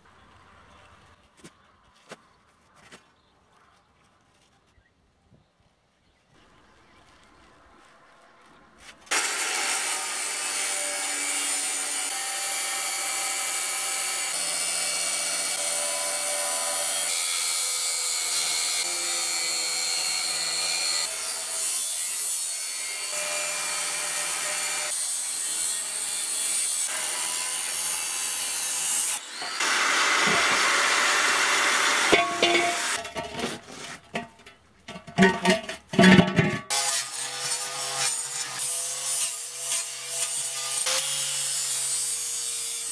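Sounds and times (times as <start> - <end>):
angle grinder cutting steel: 9.1 - 34.5, 36.3 - 42.9
metal clanks and knocks: 32.1 - 36.7.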